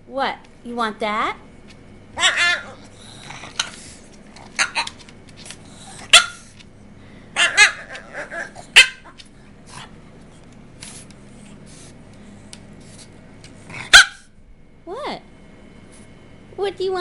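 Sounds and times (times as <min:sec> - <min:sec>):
dog yipping: 0:02.2 - 0:02.9, 0:04.6 - 0:05.0, 0:06.1 - 0:06.4, 0:07.4 - 0:09.2, 0:13.9 - 0:14.3.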